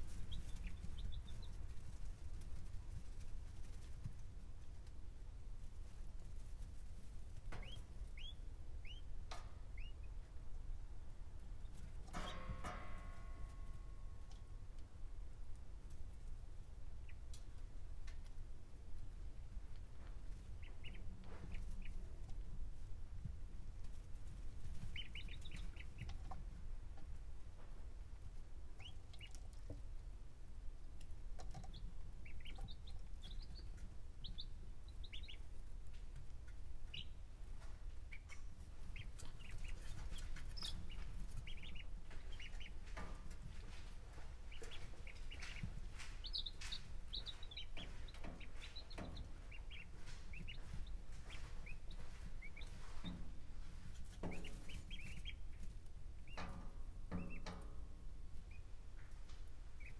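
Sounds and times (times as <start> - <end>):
chicks peeping: 0.0 - 14.9, 15.5 - 59.9.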